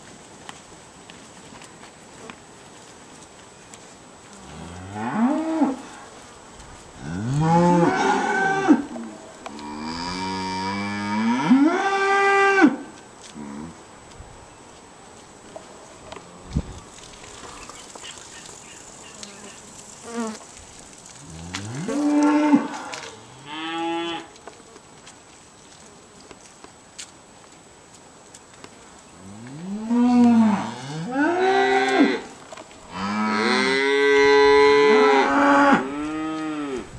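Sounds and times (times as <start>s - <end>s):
cattle mooing: 7.0s - 12.8s, 32.9s - 36.9s.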